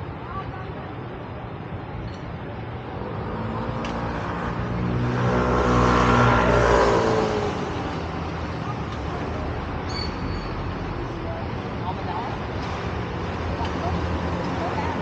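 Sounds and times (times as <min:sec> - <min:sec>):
steady traffic noise: 0:00.0 - 0:15.0
vehicle engine passing by: 0:02.8 - 0:08.6.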